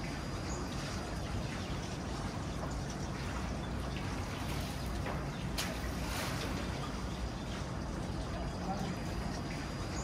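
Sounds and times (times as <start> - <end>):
pool water lapping and trickling: 0.0 - 10.0
water splash: 3.1 - 7.6.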